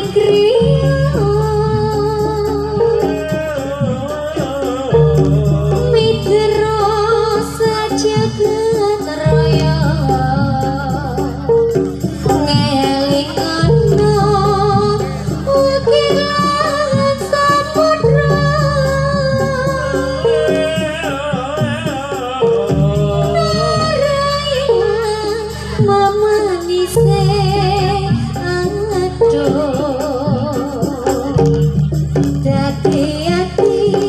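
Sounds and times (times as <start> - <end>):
person singing ornamented melody: 0.0 - 31.7
gamelan music: 0.0 - 34.0.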